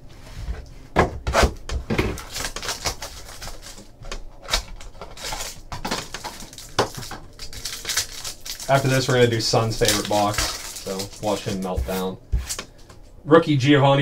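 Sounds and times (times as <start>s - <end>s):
wrapper and cards rustling: 2.1s - 13.0s.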